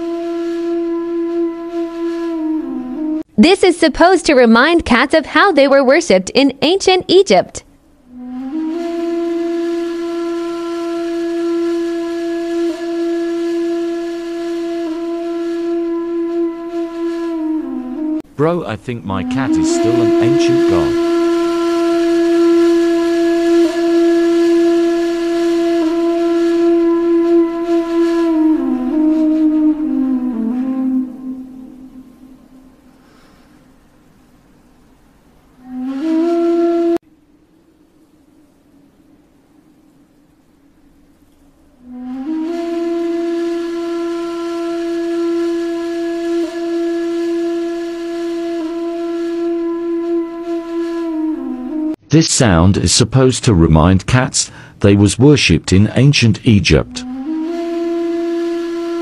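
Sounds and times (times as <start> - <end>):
flute-like long note: 0.0 - 3.3, 8.1 - 33.4, 35.6 - 37.0, 41.8 - 52.0, 56.7 - 59.0
breathy flute-like low note: 19.2 - 21.5.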